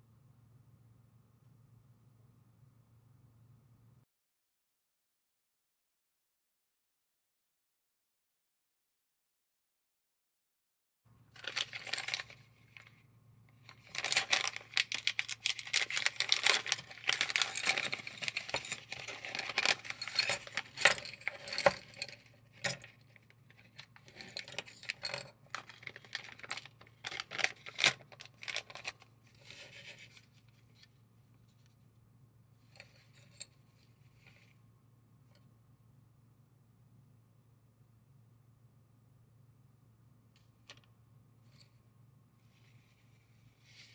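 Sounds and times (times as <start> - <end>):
plastic and paper crinkling: 11.4 - 13.0, 13.6 - 31.6.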